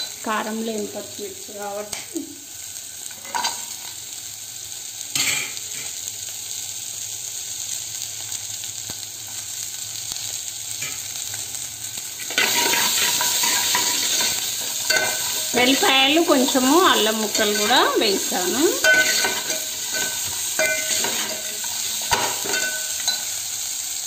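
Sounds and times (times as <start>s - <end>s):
chillies sizzling in hot oil: 0.0s - 24.0s
ladle clinking against pot: 18.8s - 21.5s.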